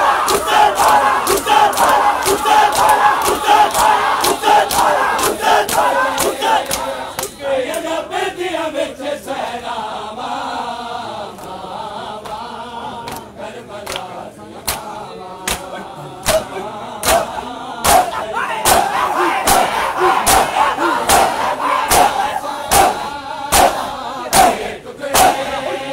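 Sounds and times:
hands slapping chests: 0.0 - 7.9, 13.1 - 14.9, 15.5 - 24.6, 25.2 - 25.5
men chanting in unison: 0.0 - 25.9.

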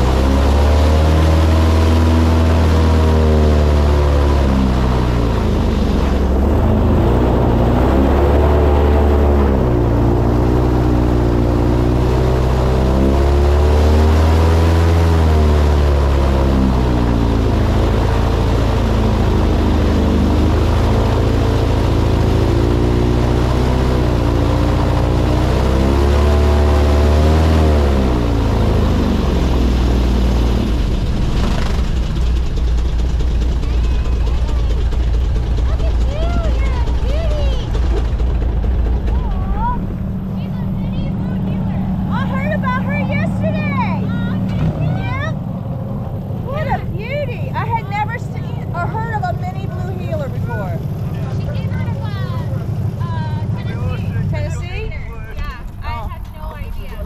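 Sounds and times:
airboat engine and propeller: 0.0 - 57.0.

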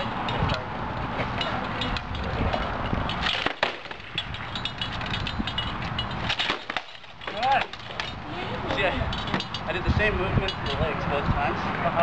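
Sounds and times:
steady background noise: 0.0 - 12.0
loud crack: 3.2 - 4.2
hard objects knocking: 9.1 - 9.7.

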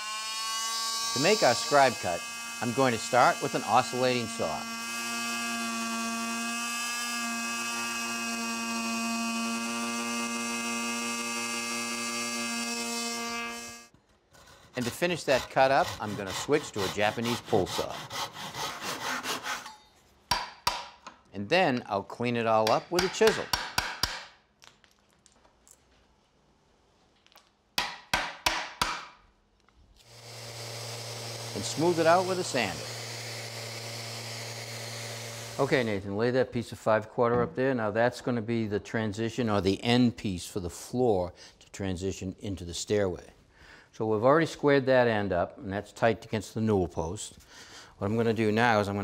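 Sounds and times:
multi-tool saw buzzing: 0.0 - 19.7, 30.0 - 36.0
hammer striking wood chisel: 19.2 - 21.2, 22.6 - 24.4, 27.8 - 29.2.

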